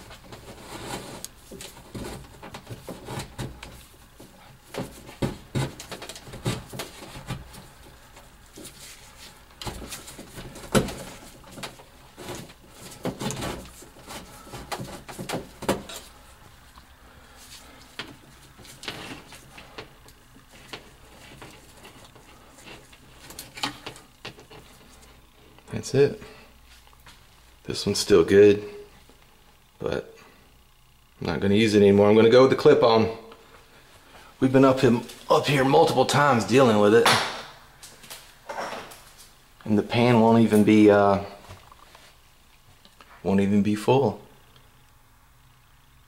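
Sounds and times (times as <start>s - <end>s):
hands rustling wires: 0.0s - 27.6s.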